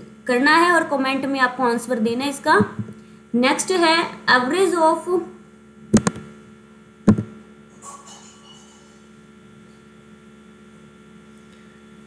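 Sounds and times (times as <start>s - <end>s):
electrical hum: 0.0s - 12.0s
sharp click: 6.0s - 6.3s, 7.1s - 7.3s.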